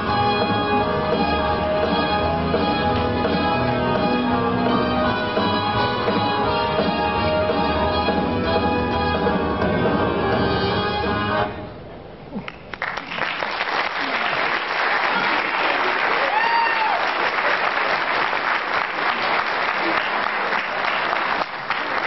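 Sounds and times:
audience applauding: 12.4s - 22.0s
person cheering: 16.1s - 17.2s.

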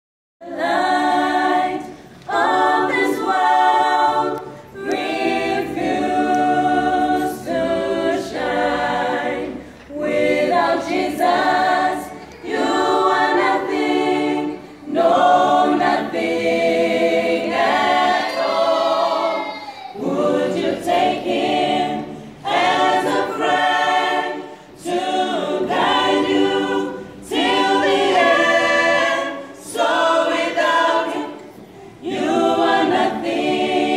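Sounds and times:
choir singing a cappella: 0.4s - 33.9s.

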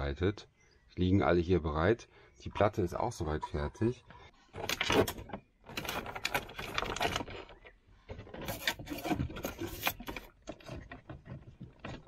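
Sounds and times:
clicks knocks and rubbing of cables: 4.6s - 12.0s.

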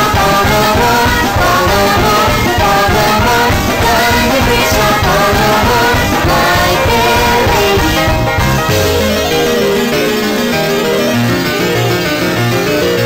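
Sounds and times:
background music with singing: 0.0s - 10.1s.

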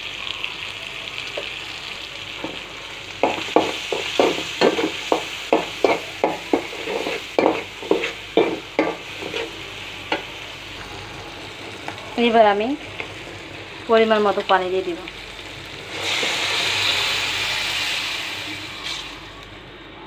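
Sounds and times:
prawns sizzling in hot oil: 0.0s - 19.6s
metal spatula scraping pan: 5.8s - 9.6s.

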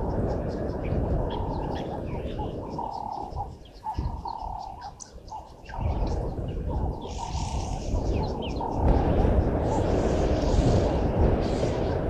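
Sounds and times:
birds chirping: 0.0s - 12.0s
low rumble: 5.7s - 12.0s.

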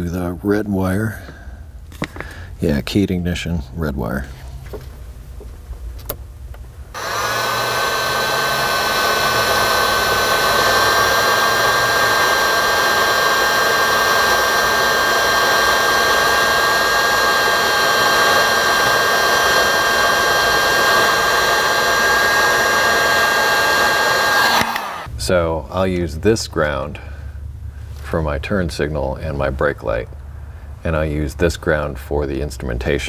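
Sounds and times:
heat gun blowing with motor whine: 6.9s - 25.1s.

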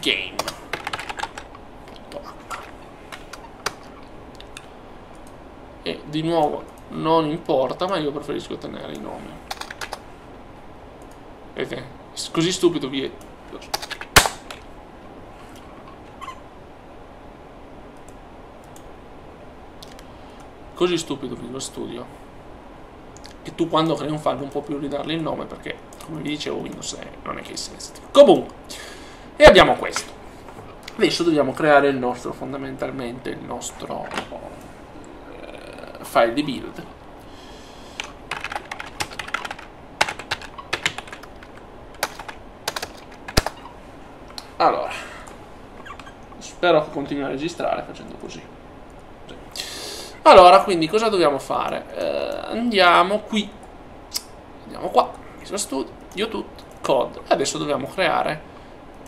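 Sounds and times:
microphone hiss: 0.0s - 59.0s
mouse and keyboard clicks: 38.4s - 43.7s.

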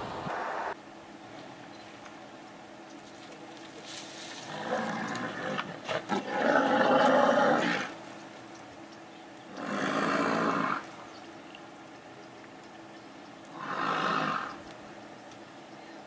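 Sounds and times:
lion roaring: 4.4s - 7.9s, 9.6s - 10.8s, 13.5s - 14.6s.

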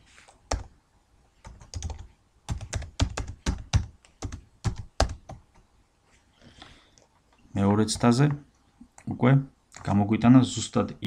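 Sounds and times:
typing on computer keyboard: 1.4s - 5.6s.

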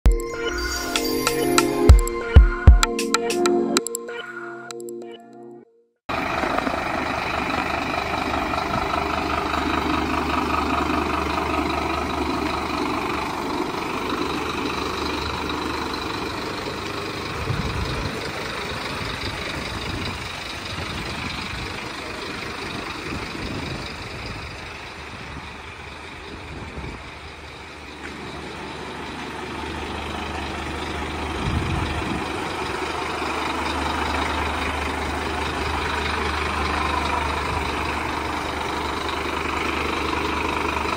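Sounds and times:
diesel engine idling: 6.1s - 40.9s.

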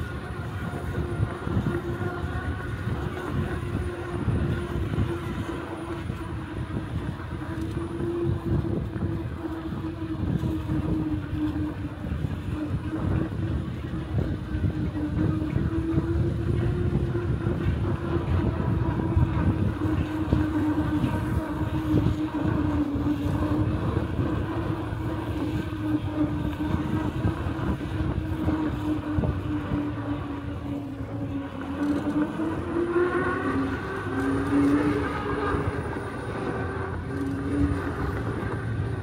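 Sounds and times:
electric motor whining: 0.0s - 39.0s
wind buffeting microphone: 0.0s - 39.0s.

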